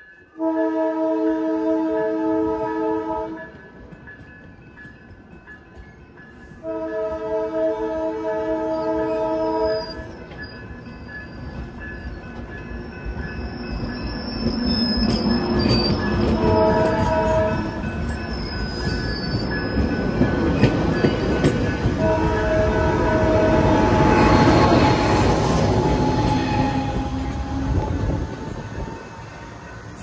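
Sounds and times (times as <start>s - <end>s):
multi-note train horn: 0.4s - 3.5s, 6.6s - 10.1s, 16.3s - 17.8s, 21.9s - 29.3s
train cars rumbling past: 1.4s - 30.0s
high wheel squeal: 13.4s - 17.2s.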